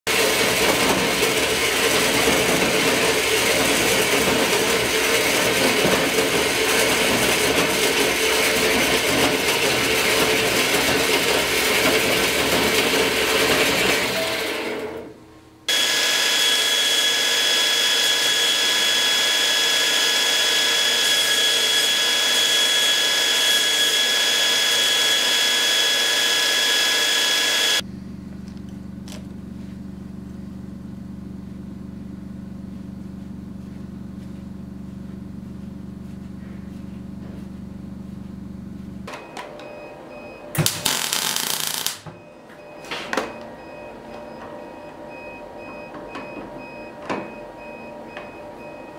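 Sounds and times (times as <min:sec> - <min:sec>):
bandsaw cutting metal: 0:00.1 - 0:15.1, 0:15.7 - 0:27.8, 0:40.6 - 0:42.0
belt grinder whining: 0:00.1 - 0:15.1, 0:15.7 - 0:27.8, 0:40.6 - 0:42.0
low hum: 0:27.8 - 0:39.1.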